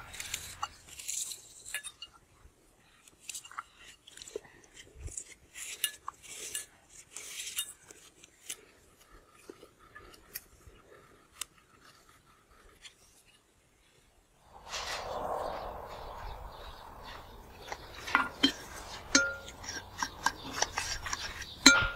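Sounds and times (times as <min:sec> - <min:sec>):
vegetables snapping and crunching: 0:00.0 - 0:01.9.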